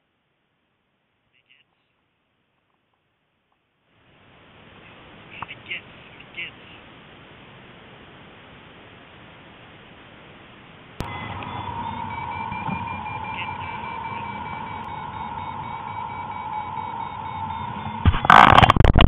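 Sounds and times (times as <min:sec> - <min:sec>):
variometer beeping rapidly: 0:11.0 - 0:19.0
loud rough noise bursts: 0:18.0 - 0:19.0.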